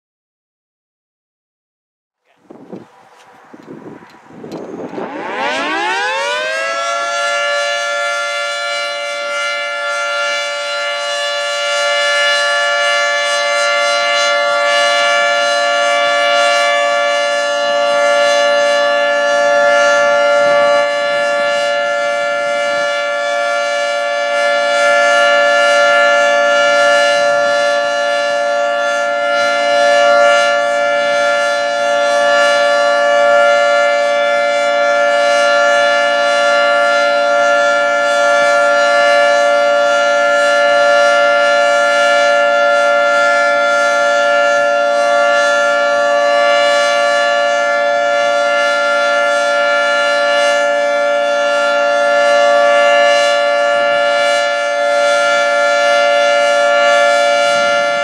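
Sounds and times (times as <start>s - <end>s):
two-tone warning siren: 2.2s - 58.0s.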